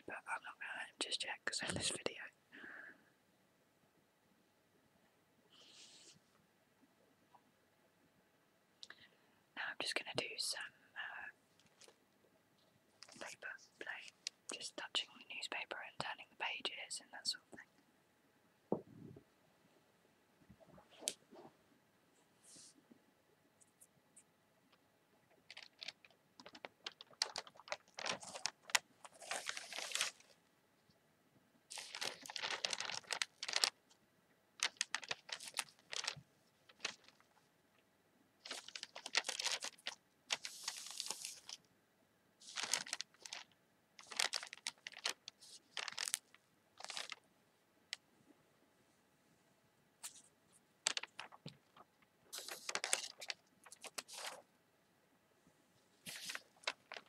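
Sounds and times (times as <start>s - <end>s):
newspaper pages rustling: 25.5s - 30.4s, 31.7s - 33.8s, 34.6s - 37.3s, 38.4s - 41.6s, 42.4s - 47.2s, 50.8s - 54.4s, 56.0s - 57.0s.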